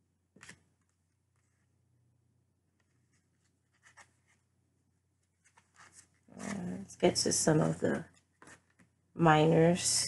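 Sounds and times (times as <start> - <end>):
cards scraping and rustling: 0.4 - 1.7, 2.8 - 4.5, 5.2 - 6.8, 8.2 - 8.9.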